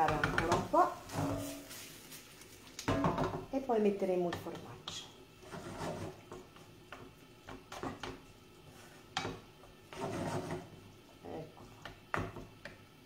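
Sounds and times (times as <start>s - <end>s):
spoon scraping a pan: 0.0s - 1.9s, 4.3s - 10.9s
wooden spoon stirring rice: 0.0s - 12.8s.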